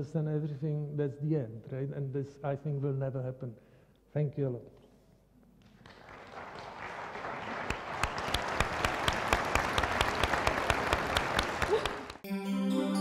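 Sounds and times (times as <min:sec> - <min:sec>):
audience applauding: 0:05.8 - 0:12.2.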